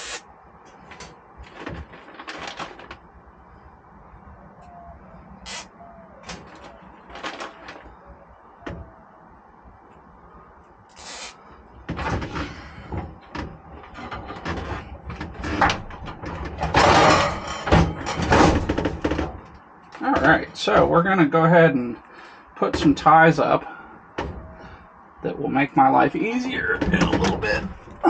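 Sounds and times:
rustling: 0.0 - 3.1.

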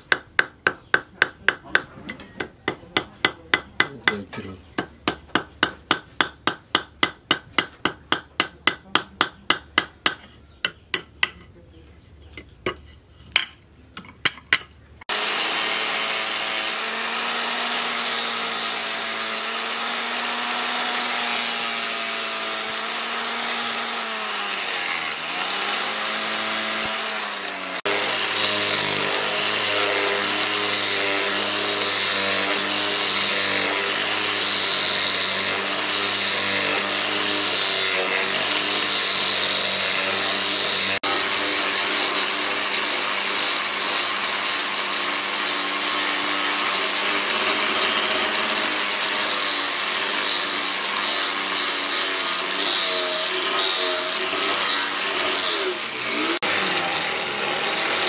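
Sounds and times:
angle grinder sanding wood: 15.0 - 58.0.

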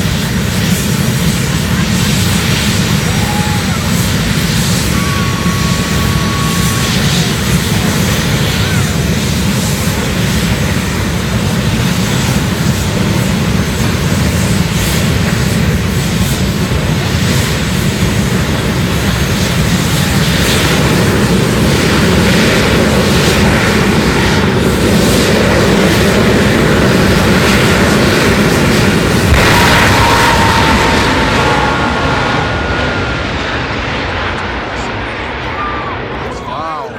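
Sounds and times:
jet engine roar: 0.0 - 36.9.

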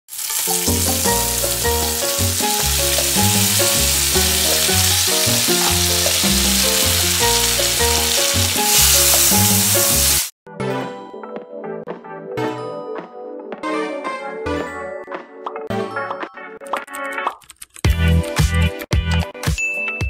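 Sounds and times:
food sizzling in a frying pan: 0.1 - 10.4
background music with bass line: 0.6 - 10.3, 17.9 - 19.6.

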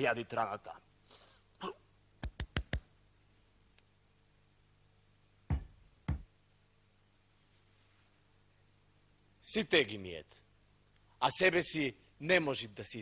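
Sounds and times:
fist thumping on bare chest: 5.5 - 6.3.

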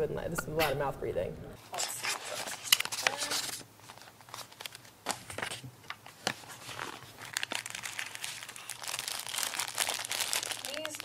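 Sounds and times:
plastic wrap crinkling: 2.4 - 11.0.

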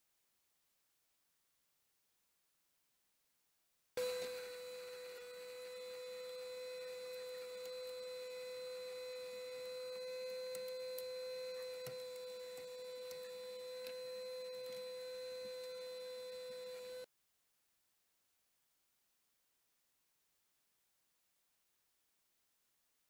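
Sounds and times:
steady electrical whine: 4.0 - 17.1.

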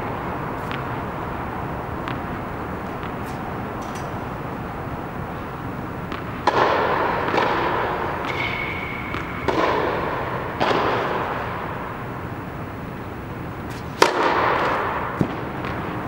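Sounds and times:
tennis ball pops echoing: 0.6 - 1.1, 1.8 - 4.3, 6.0 - 12.0, 13.7 - 16.0.

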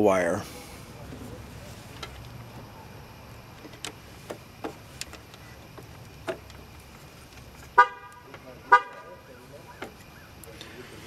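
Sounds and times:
vehicle horn toot: 7.7 - 9.2.

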